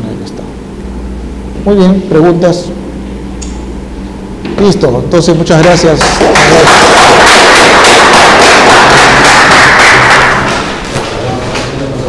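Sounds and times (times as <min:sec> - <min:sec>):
audience applauding: 0:06.0 - 0:10.8.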